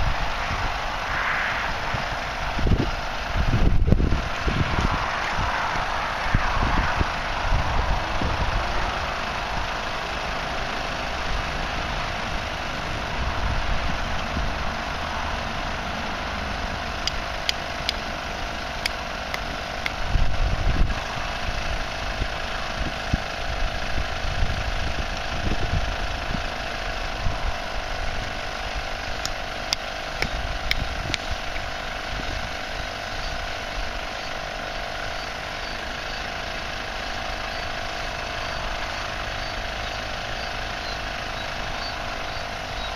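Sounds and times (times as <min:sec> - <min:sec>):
wind rumble on microphone: 0:00.0 - 0:10.0, 0:12.2 - 0:14.9, 0:19.5 - 0:29.4, 0:30.2 - 0:34.0
electric air compressors humming: 0:00.0 - 0:42.9.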